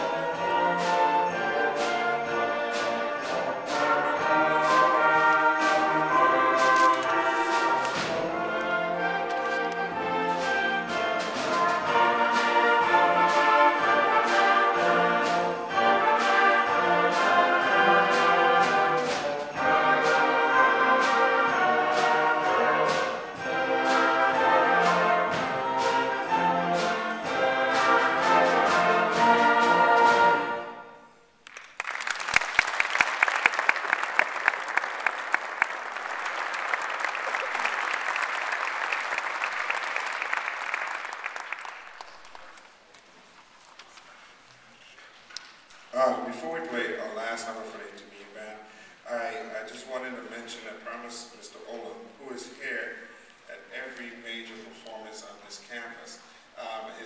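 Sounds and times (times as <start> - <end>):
concert band playing: 0.0 - 31.1
audience applauding: 31.4 - 43.2.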